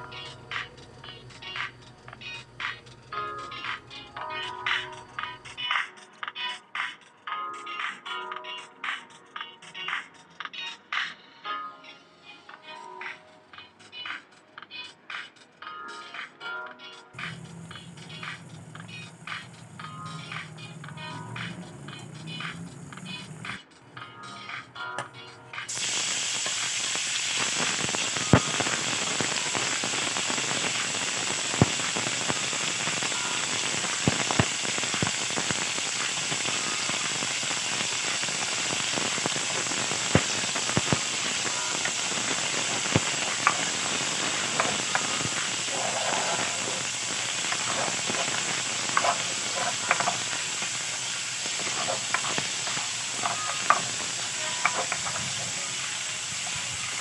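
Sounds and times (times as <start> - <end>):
meat sizzling in a pan: 25.7 - 57.0.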